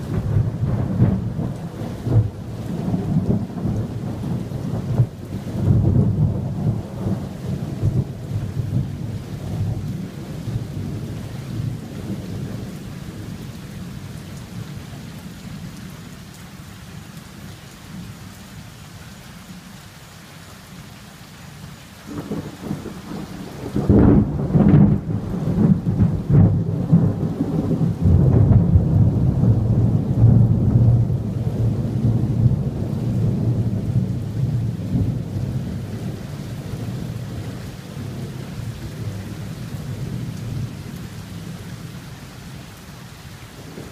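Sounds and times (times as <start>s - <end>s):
thunder rumbling: 0.0s - 13.3s, 22.1s - 42.0s, 43.6s - 43.9s
rain hissing: 0.0s - 43.9s
sharp thunder cracks: 22.1s - 31.2s.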